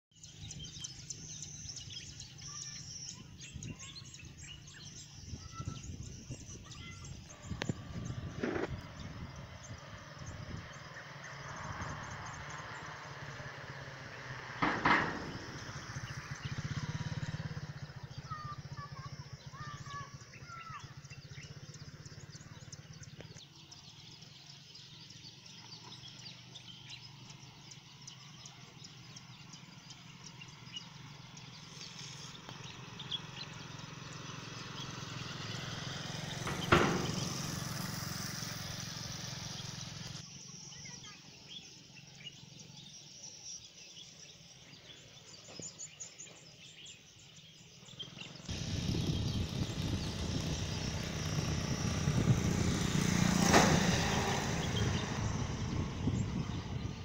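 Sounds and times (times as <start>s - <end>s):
bird chirps: 0.1s - 57.0s
engine humming: 0.2s - 40.3s, 47.8s - 57.0s
sharp knocks: 14.6s - 16.2s, 36.2s - 38.0s.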